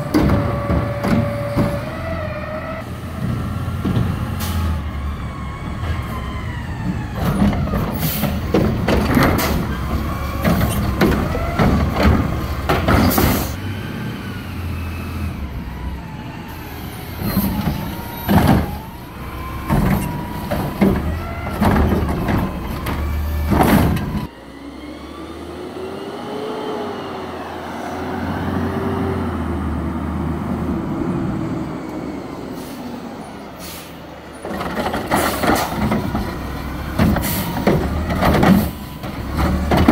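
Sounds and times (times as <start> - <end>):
garbage truck engine hum: 0.0 - 39.9
metal clanks and bangs: 19.6 - 24.3.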